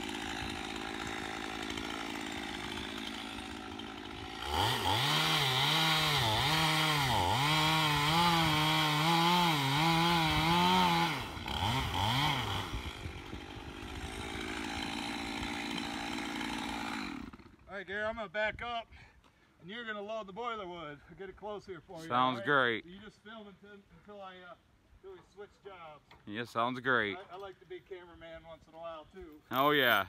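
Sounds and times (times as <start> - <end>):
chainsaw cutting log: 0.0 - 17.8
chainsaw engine: 0.0 - 17.8.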